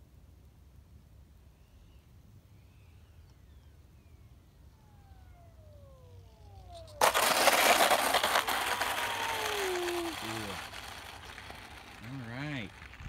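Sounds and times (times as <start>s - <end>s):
electric ducted fan whine: 0.0s - 13.0s
model jet rolling on pavement: 4.8s - 13.0s.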